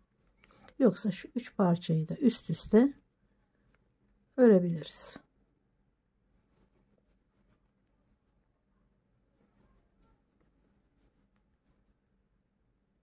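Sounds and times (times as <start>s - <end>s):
crochet hook scratching yarn: 0.0s - 4.2s, 6.3s - 8.5s, 9.3s - 12.2s.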